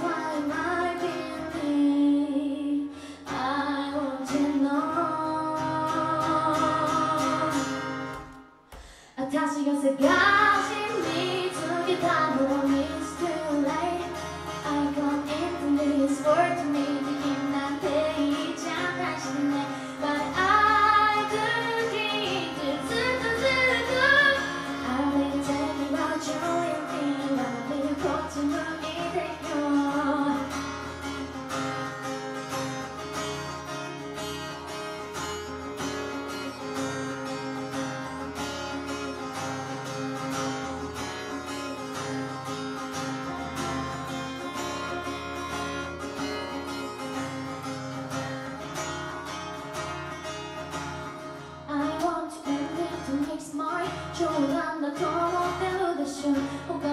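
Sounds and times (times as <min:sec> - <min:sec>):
woman singing: 0:00.0 - 0:30.8, 0:51.6 - 0:56.9
strummed acoustic guitar: 0:00.0 - 0:56.9.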